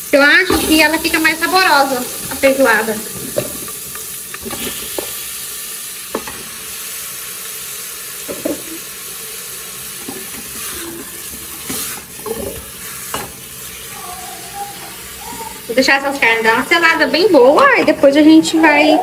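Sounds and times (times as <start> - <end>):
meat sizzling in a pot: 0.0 - 19.0
spatula scraping and knocking pot: 3.1 - 5.2, 10.0 - 13.4.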